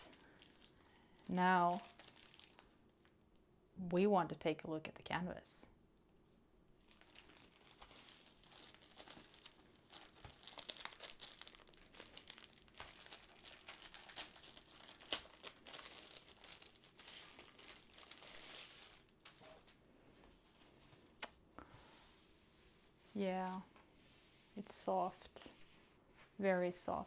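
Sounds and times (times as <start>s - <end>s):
plastic packaging crinkling: 0.0s - 2.8s, 6.8s - 19.8s.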